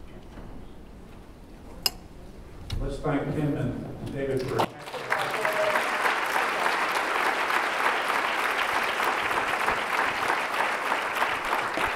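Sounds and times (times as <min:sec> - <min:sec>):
audience clapping: 0:04.4 - 0:11.9.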